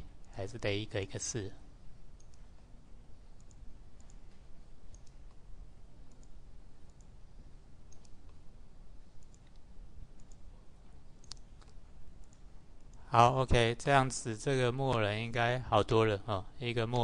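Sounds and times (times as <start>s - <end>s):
low room hum: 0.0s - 17.0s
computer mouse clicking: 2.2s - 2.4s, 3.4s - 4.3s, 4.9s - 5.4s, 6.0s - 7.2s, 7.9s - 8.4s, 9.2s - 10.5s, 11.2s - 13.0s.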